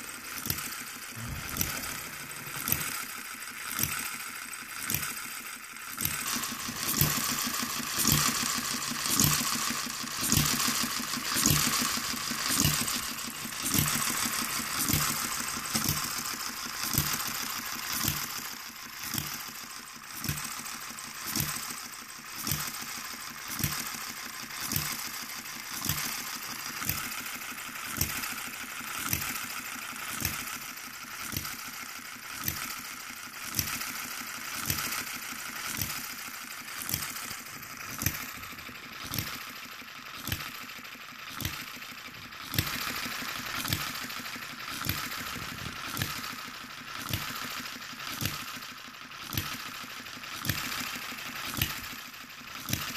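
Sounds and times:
light mechanical clatter: 0.0 - 52.9
model gas engine running: 0.0 - 52.9.

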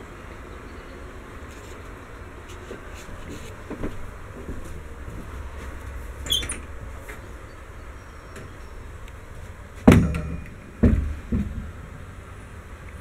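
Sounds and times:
short squeak: 6.2 - 6.7
dull thumps: 9.8 - 11.8.

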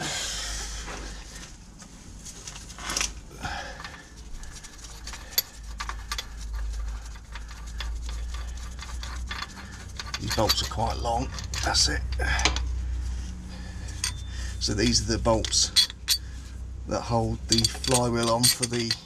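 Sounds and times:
low steady hum: 0.0 - 19.0
metal bolts clicking and clinking: 5.1 - 6.5, 7.1 - 12.7, 13.9 - 16.3, 17.1 - 19.0.

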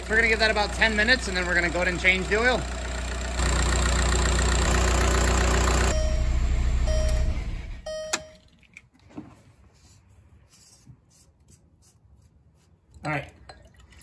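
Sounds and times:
diesel engine idling: 0.0 - 8.0
warning chime beeping: 5.9 - 8.4.

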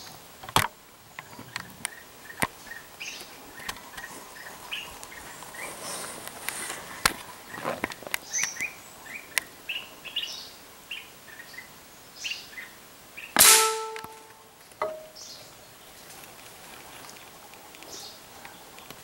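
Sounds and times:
small birds chirping: 0.9 - 13.4, 14.1 - 19.0
loud gunshot: 13.4 - 14.2
brief sharp sound: 13.4 - 14.3.

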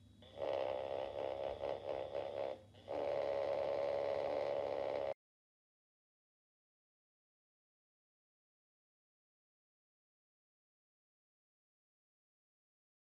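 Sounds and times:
vibrator buzzing on a wooden table: 0.2 - 5.2.

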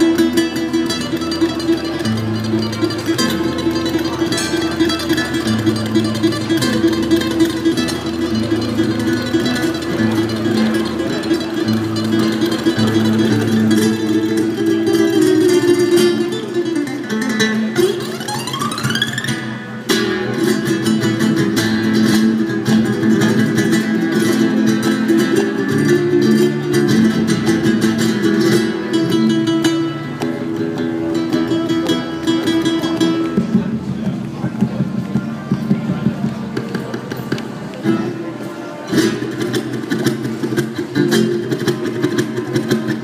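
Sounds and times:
fingerstyle acoustic guitar: 0.0 - 43.0.

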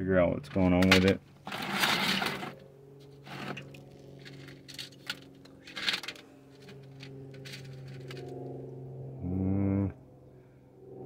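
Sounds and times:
steady low hum: 0.0 - 11.0
stones rattling on wire mesh: 0.9 - 2.6, 3.3 - 8.3.

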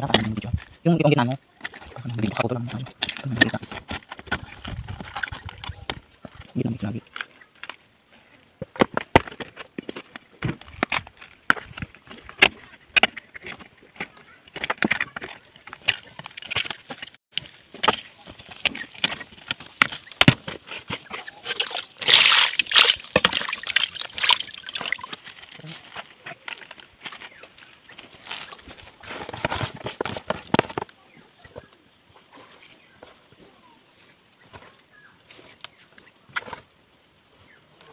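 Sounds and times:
hands squeezing wet meat: 21.4 - 25.7.

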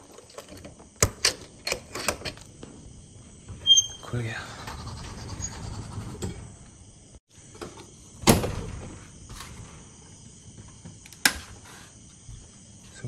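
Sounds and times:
door rattle: 8.2 - 9.8.

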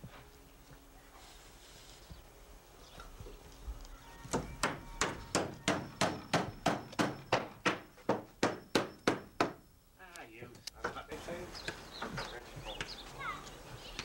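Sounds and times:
hammer driving nails into wood: 4.3 - 9.6.

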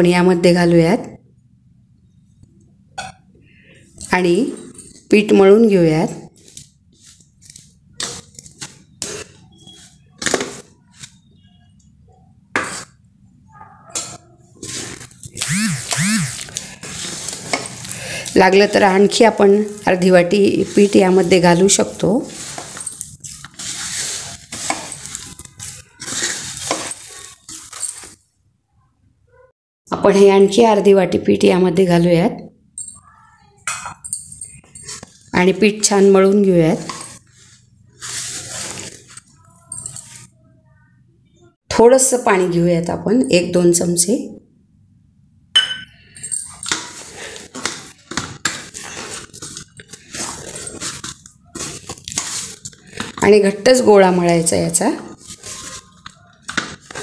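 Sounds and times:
dough squishing against metal plate: 6.3 - 12.0, 16.3 - 28.2, 46.7 - 57.0
sharp metallic clink: 45.6 - 46.6.

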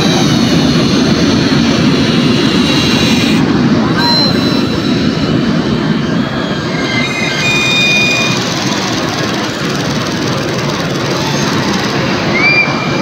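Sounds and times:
recorded airplane engine drone: 0.0 - 13.0
short electronic beeps: 3.9 - 5.7, 6.8 - 8.6.

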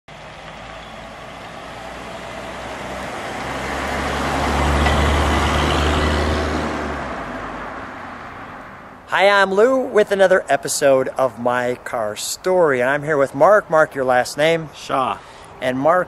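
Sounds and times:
car engine hum: 0.1 - 9.0.

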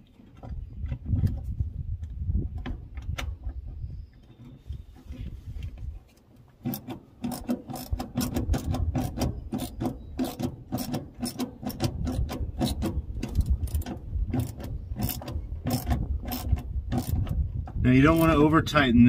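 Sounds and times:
hand ratchet clicking: 6.6 - 17.4.

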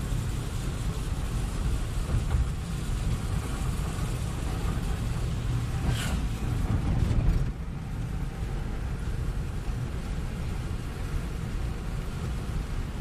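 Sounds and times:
traffic rumble: 0.0 - 13.0
brief hiss: 5.8 - 6.5.

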